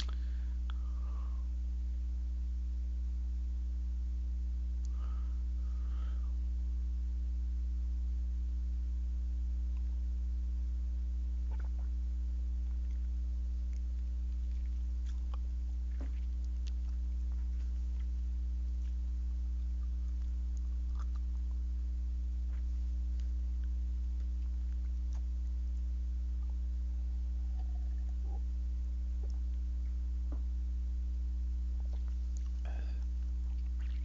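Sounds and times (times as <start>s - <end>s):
low electrical hum: 0.0s - 34.0s.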